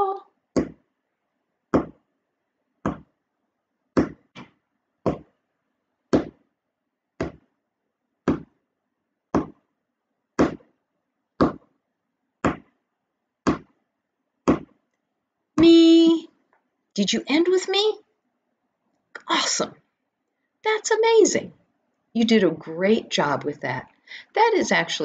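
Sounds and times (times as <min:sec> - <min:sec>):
steady taps: 0:00.6 - 0:00.9, 0:01.7 - 0:02.1, 0:02.8 - 0:03.2, 0:04.0 - 0:05.4, 0:06.1 - 0:06.4, 0:07.2 - 0:07.5, 0:08.3 - 0:08.6, 0:09.3 - 0:09.6, 0:10.4 - 0:10.7, 0:11.4 - 0:11.8, 0:12.4 - 0:12.8, 0:13.4 - 0:13.8, 0:14.4 - 0:14.8.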